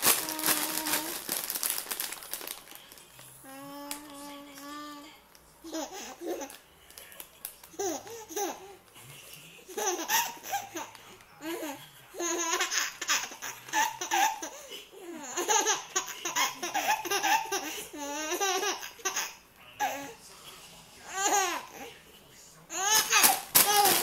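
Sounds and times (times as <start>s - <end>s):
baby laughing: 5.6s - 6.6s, 7.7s - 8.8s, 9.7s - 20.2s, 21.1s - 21.9s, 22.7s - 24.0s.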